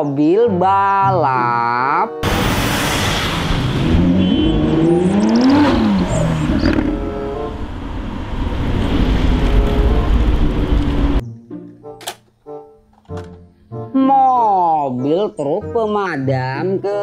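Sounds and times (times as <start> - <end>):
car engine revving: 2.2 - 11.2.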